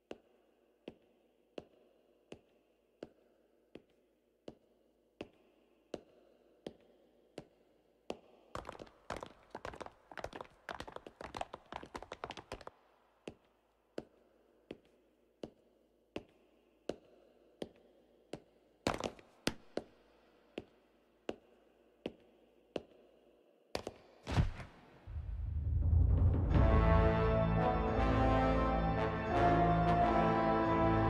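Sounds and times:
footsteps tapping: 0:08.1 - 0:12.7.

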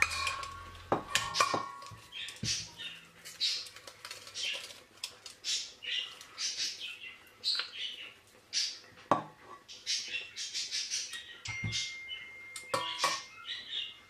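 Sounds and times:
potatoes squelching through ricer: 0:00.0 - 0:06.8.

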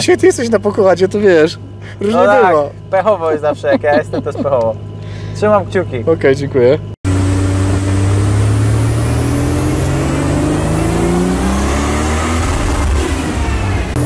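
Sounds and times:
high turbo whine: 0:00.0 - 0:14.0
turbo engine revving under load: 0:07.1 - 0:14.0.

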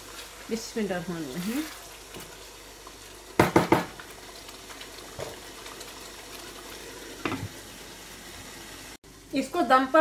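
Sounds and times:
curry bubbling: 0:00.0 - 0:08.3
wooden spatula knocking on pan: 0:03.4 - 0:04.0.

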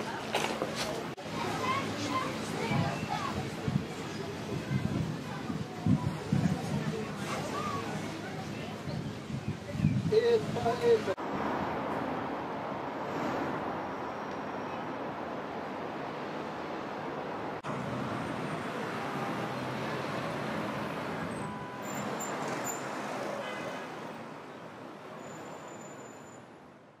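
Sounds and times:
heavy road traffic roar: 0:00.0 - 0:27.0
brief pitched tone: 0:21.3 - 0:22.9.

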